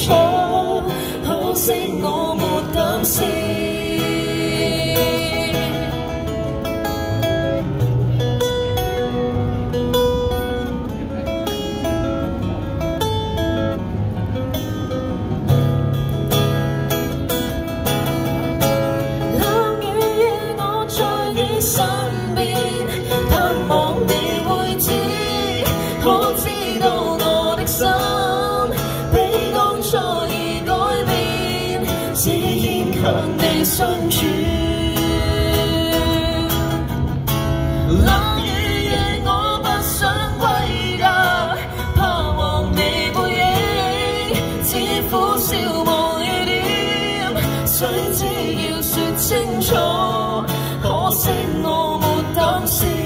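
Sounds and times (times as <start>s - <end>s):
woman singing: 0.0s - 6.1s, 19.3s - 37.0s, 37.9s - 53.0s
guitar: 0.0s - 53.0s.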